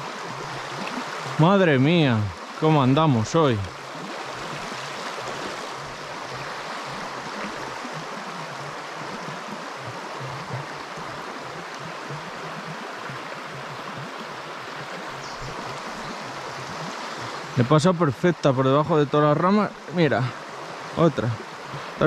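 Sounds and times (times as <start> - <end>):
river rushing over gravel: 0.0 - 22.0.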